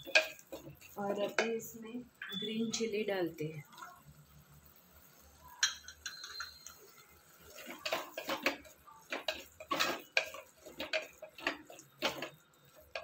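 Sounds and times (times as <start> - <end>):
wooden spoon scraping clay pot: 0.0 - 1.5, 7.4 - 13.0.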